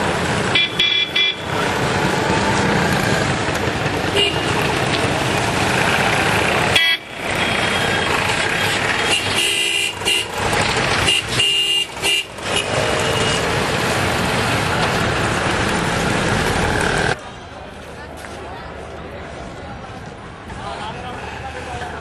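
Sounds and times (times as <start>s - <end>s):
vehicle engines running: 0.0s - 22.0s
vehicle horns honking: 0.5s - 1.6s, 4.1s - 4.8s, 6.7s - 13.5s.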